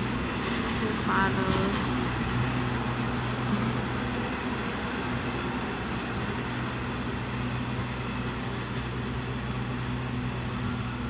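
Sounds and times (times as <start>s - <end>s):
low mechanical drone: 0.0s - 11.0s.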